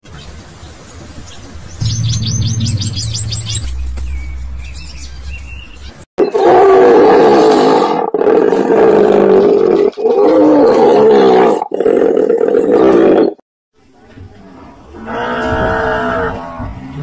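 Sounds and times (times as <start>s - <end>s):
faint low hum: 1.8s - 5.9s.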